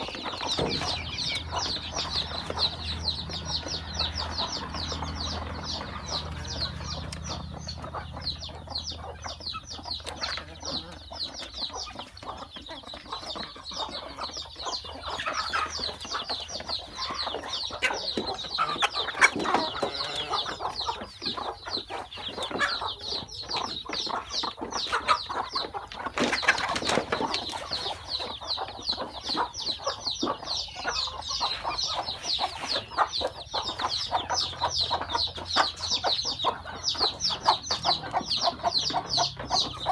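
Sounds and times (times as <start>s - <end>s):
chicks peeping: 0.0s - 39.9s
hens clucking: 0.0s - 39.9s.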